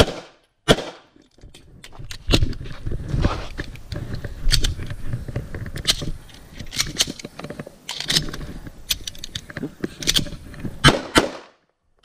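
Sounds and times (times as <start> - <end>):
footsteps: 1.1 - 10.9
gear rattling: 1.2 - 10.8.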